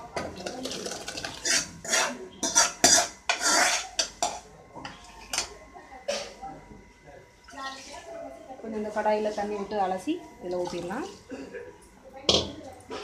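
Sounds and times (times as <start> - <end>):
steel ladle scraping metal pans: 0.6 - 5.5.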